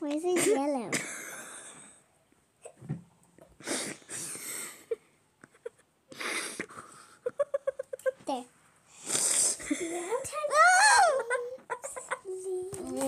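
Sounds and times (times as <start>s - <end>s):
person puffing breath: 3.6s - 4.9s, 6.1s - 7.2s, 8.9s - 10.0s.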